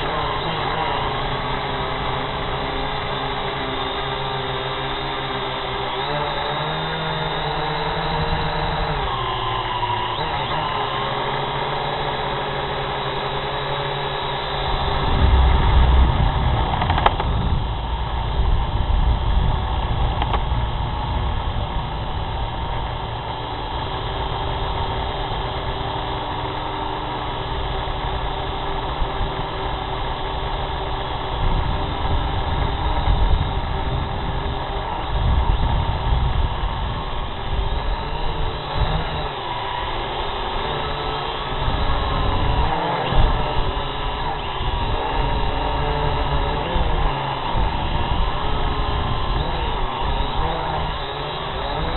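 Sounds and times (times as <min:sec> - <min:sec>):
drone propellers whirring: 0:00.0 - 0:51.9
deep rumble: 0:14.7 - 0:24.8.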